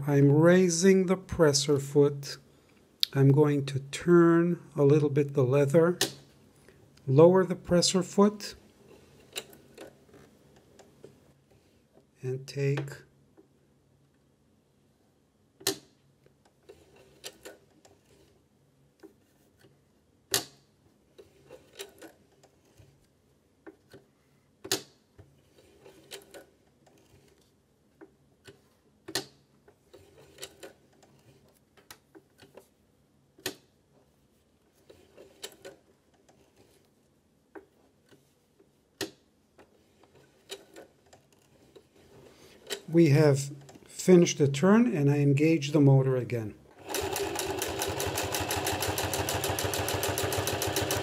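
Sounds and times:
sewing machine clicking: 46.7 - 51.0.

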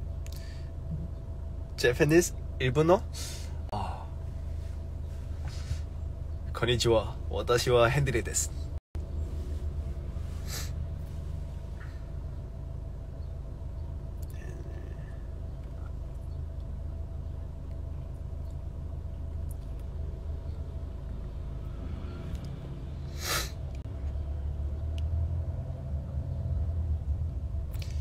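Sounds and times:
car interior rumble: 0.0 - 28.0
short hiss: 23.2 - 23.6.

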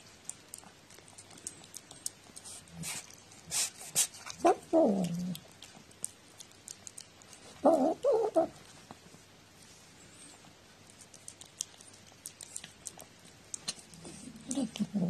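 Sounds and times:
faint chewing and licking clicks: 0.0 - 9.0, 10.2 - 15.0
cat vocalizing: 3.9 - 8.6, 11.3 - 15.0.

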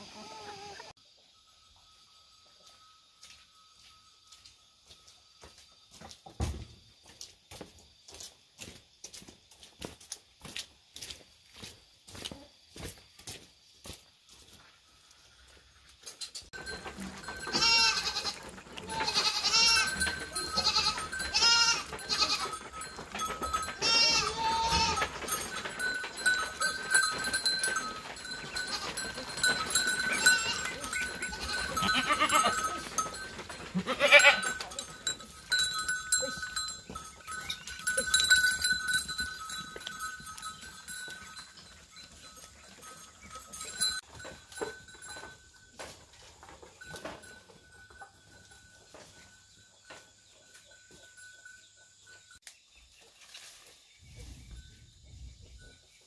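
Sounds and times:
goats bleating: 0.0 - 0.9, 17.2 - 22.8, 23.5 - 25.2, 28.4 - 33.1, 33.7 - 34.8
faint steady high tone: 0.2 - 6.1.

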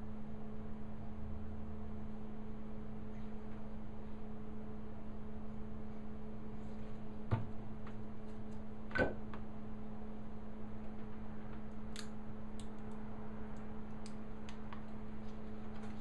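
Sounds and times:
electrical hum: 0.0 - 16.0.

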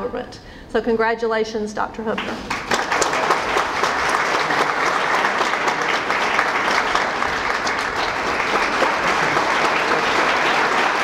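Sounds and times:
audience applauding: 2.4 - 11.0.

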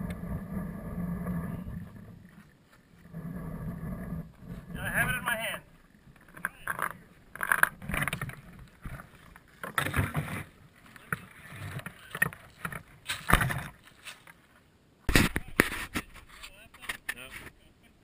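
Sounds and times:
handling bumps knocks and rustles: 7.8 - 14.4.

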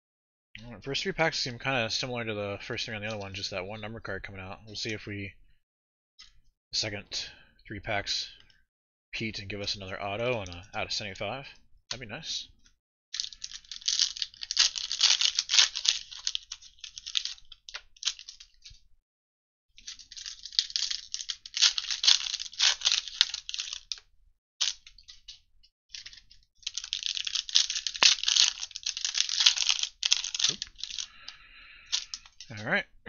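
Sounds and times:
plastic wrappers crinkling and tearing: 13.2 - 18.7, 19.8 - 25.4, 26.0 - 32.6.

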